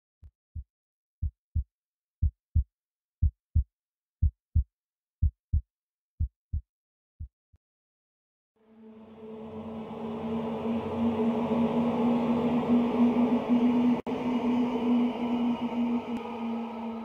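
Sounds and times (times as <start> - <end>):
heartbeat thumps: 0.5 - 7.3.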